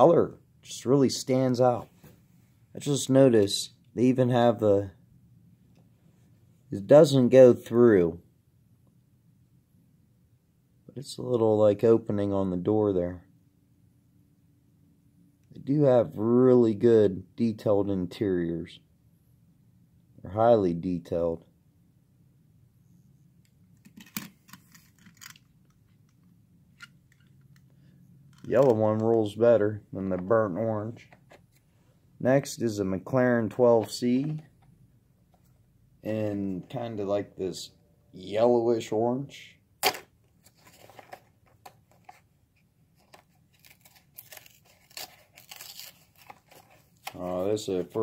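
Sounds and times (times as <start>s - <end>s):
packaging rustling: 40.4s - 42.2s, 43.0s - 48.0s.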